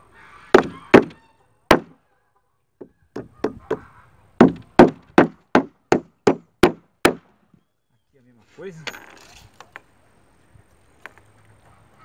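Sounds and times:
hammer driving nails into wood: 0.6 - 1.9, 4.4 - 7.3.

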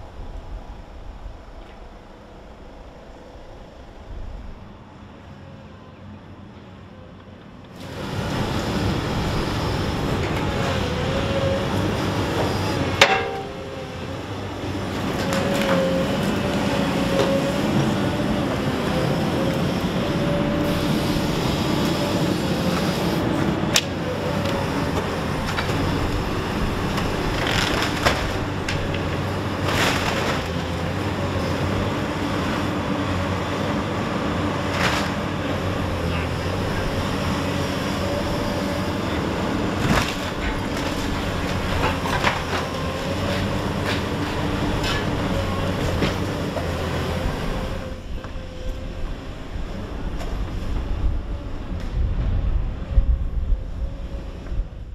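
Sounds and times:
excavator engine and hydraulics droning: 0.0 - 54.9
masonry and timber crashing: 12.9 - 13.7.

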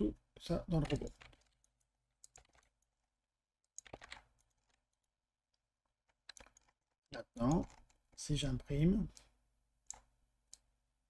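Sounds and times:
computer keyboard and mouse clicks: 0.7 - 2.9, 3.6 - 5.1, 6.0 - 10.7.

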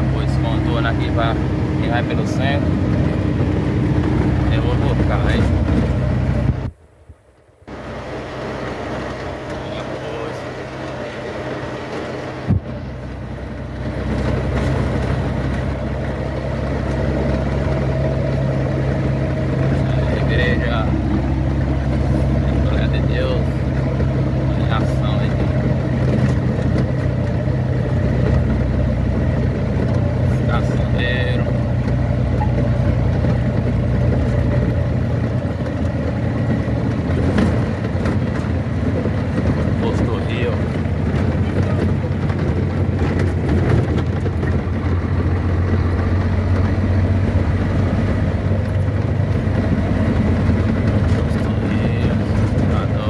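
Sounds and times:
vehicle engine running: 0.0 - 53.0
short low thump: 12.4 - 12.8.

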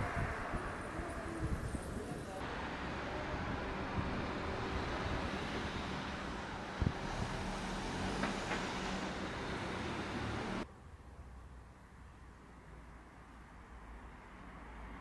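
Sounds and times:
car passing: 0.0 - 10.6.

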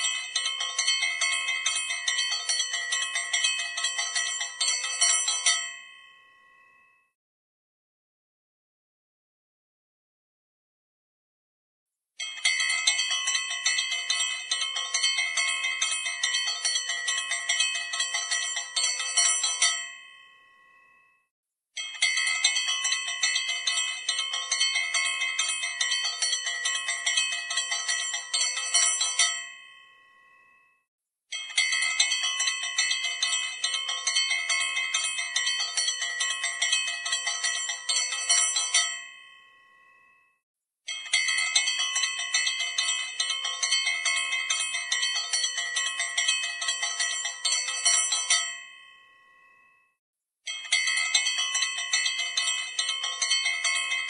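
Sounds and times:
hand bell ringing rapidly: 50.7 - 54.0.

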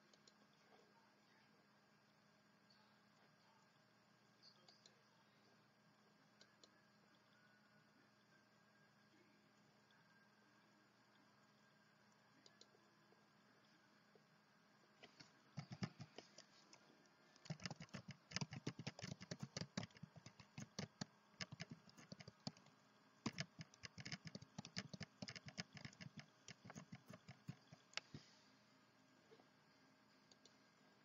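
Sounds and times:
faint keyboard typing: 9.8 - 13.8, 15.0 - 28.3.

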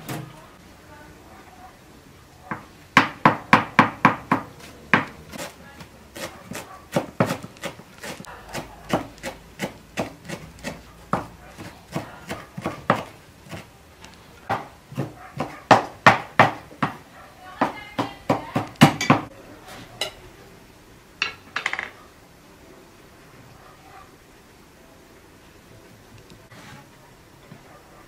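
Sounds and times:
knife chopping on wooden board: 2.5 - 13.7, 14.5 - 17.0, 17.6 - 19.3.

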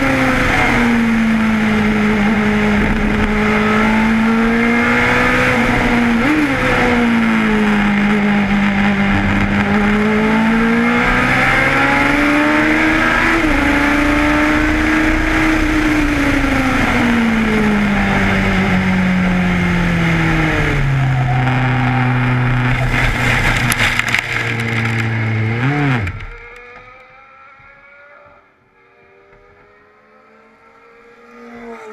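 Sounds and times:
racing car engine: 0.0 - 31.9
car rattling in gravel: 22.7 - 26.2.

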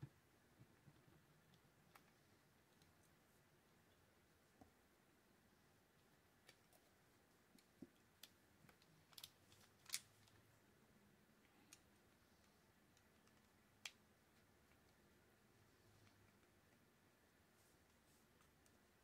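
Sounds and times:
small metal parts clicking: 9.1 - 10.3.

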